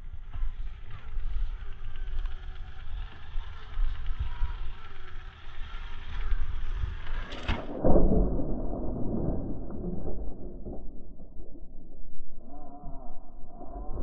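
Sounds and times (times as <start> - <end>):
small electric motor whining: 0.0 - 7.5
toy truck scraping clatter on rock: 0.3 - 7.6.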